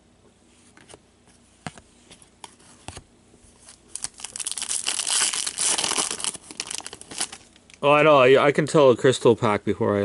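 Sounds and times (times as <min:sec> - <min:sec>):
foil wrapper crinkling: 0:03.6 - 0:07.8.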